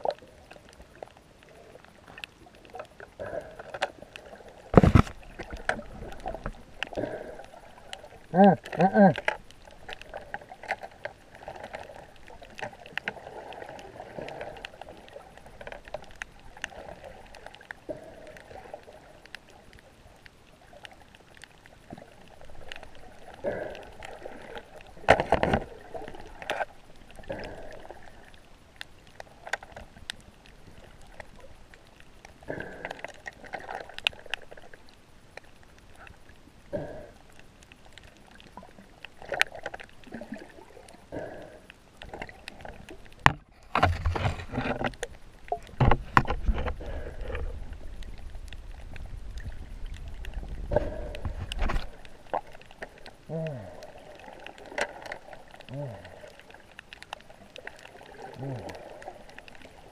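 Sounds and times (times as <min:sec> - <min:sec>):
water sloshing against housing: 0:43.3 - 0:44.9.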